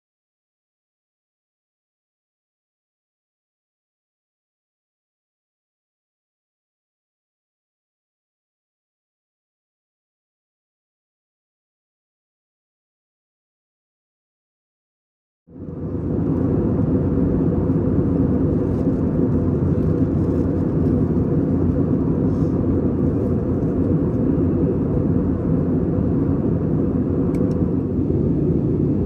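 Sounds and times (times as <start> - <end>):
airliner cabin engine rush: 15.5 - 29.0.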